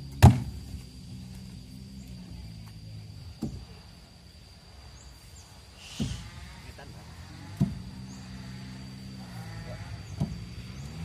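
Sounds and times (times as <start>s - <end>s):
low steady hum: 0.0s - 11.0s
log landing with deep thud: 0.1s - 0.8s, 3.3s - 3.8s, 5.9s - 6.4s, 7.5s - 8.0s, 10.0s - 10.8s.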